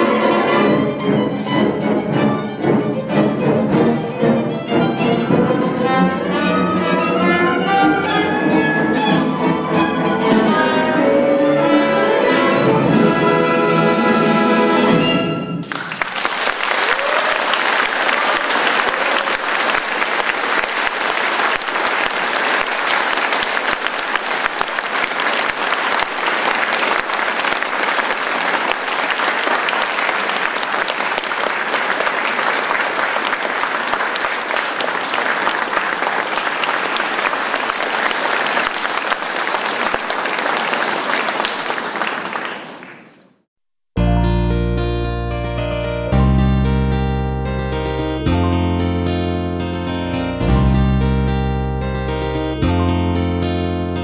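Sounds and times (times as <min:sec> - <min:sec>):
violin and orchestra chord: 0:00.0 - 0:15.6, 0:44.0 - 0:54.0
audience applauding: 0:15.6 - 0:43.4.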